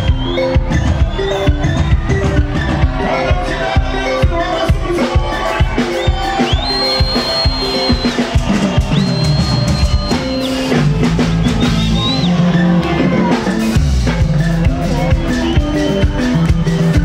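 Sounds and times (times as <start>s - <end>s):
live band music: 0.0s - 17.0s.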